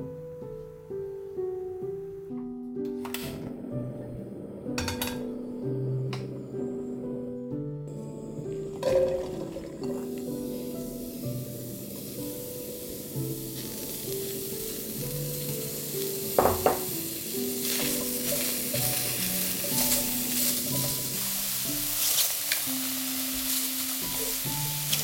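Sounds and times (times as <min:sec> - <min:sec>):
gentle background music: 0:00.0 - 0:25.0
mushrooms sizzling in frying pan: 0:08.0 - 0:25.0
utensil knocking against pan: 0:16.4 - 0:17.0.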